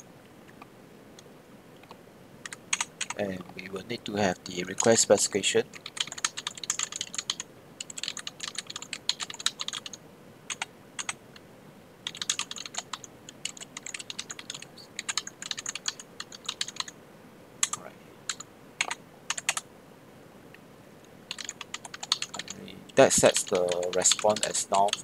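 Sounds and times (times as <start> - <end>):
typing on computer keyboard: 2.4 - 3.2, 5.7 - 11.2, 12.0 - 16.9, 17.6 - 19.6, 21.3 - 22.6, 23.2 - 25.0.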